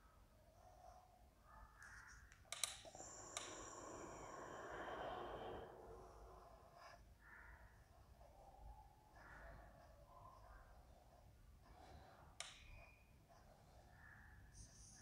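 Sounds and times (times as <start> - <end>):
marker pen on whiteboard: 0.6 - 15.0
sharp clicks: 1.8 - 4.2.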